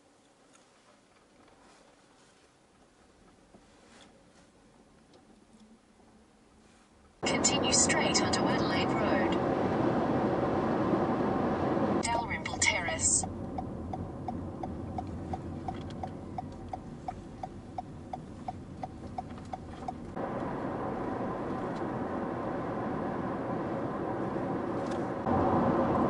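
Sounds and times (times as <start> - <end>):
car road and engine noise: 4.2 - 26.0
car turn indicator ticking: 13.5 - 20.2.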